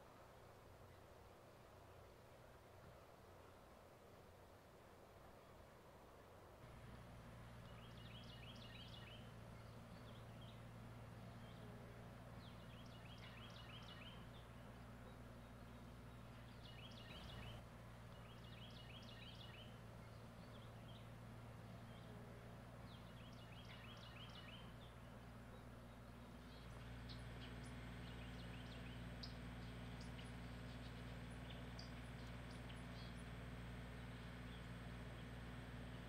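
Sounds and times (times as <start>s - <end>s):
low background hum: 0.0s - 36.0s
songbird singing: 6.6s - 36.0s
bird chirps: 7.6s - 11.8s, 12.4s - 22.2s, 22.8s - 33.4s.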